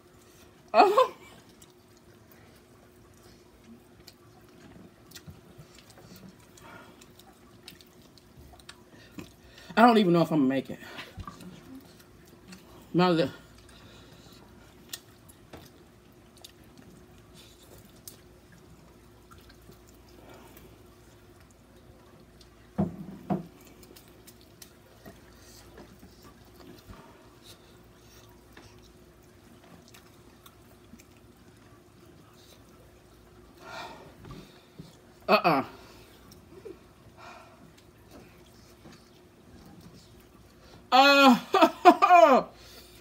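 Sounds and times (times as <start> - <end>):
faint steady hum: 0.0 - 43.0
wet chewing: 1.3 - 9.8, 11.0 - 33.7.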